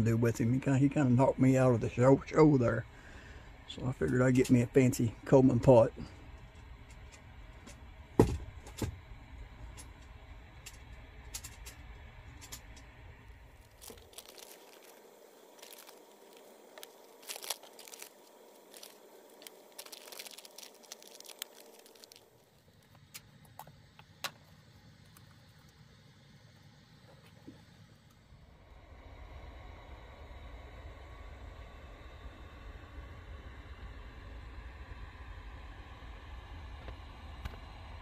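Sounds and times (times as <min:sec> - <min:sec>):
packaging crinkling and tearing: 0:13.6 - 0:23.2.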